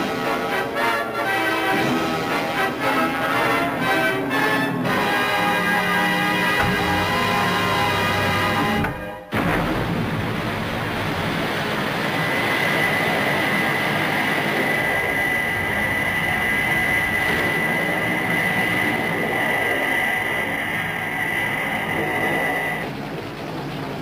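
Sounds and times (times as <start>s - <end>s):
music: 0.0s - 10.0s
jet engine roar: 0.0s - 24.0s
high engine whine: 4.8s - 24.0s.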